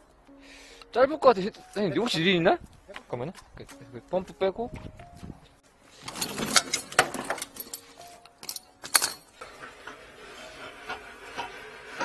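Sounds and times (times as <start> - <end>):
plumbing gear clattering: 6.0 - 7.8.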